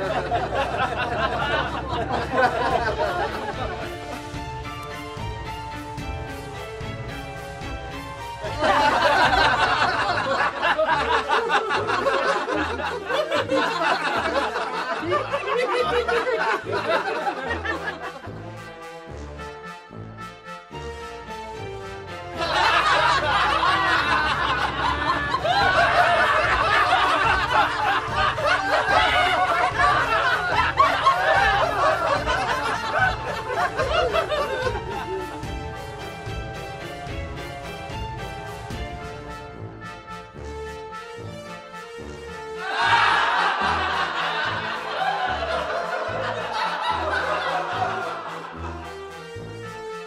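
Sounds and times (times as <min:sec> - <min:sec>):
people laughing and chattering: 0:00.0 - 0:04.3, 0:08.5 - 0:18.3, 0:22.4 - 0:35.8.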